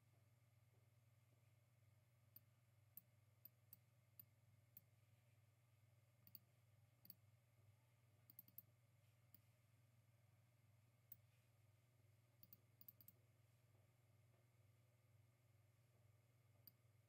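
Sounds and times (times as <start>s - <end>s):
low steady hum: 0.0s - 17.0s
computer mouse clicks: 6.2s - 6.4s, 8.3s - 8.7s, 12.4s - 13.2s.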